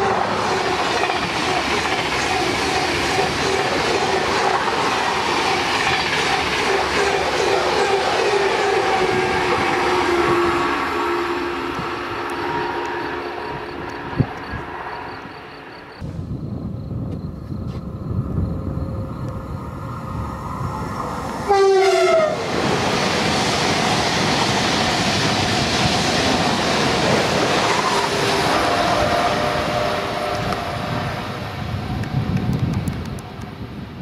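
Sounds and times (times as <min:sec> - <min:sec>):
high-speed train rumble: 0:00.0 - 0:34.0
train horn blast: 0:06.8 - 0:15.4, 0:21.4 - 0:22.5, 0:27.7 - 0:32.3
rush of wheels and air: 0:22.4 - 0:34.0.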